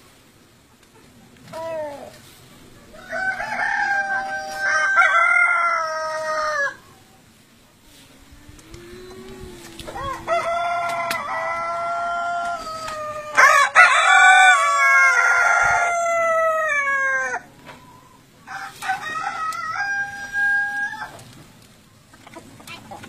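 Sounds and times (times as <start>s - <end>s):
roosters crowing: 2.8s - 7.0s, 7.9s - 21.4s.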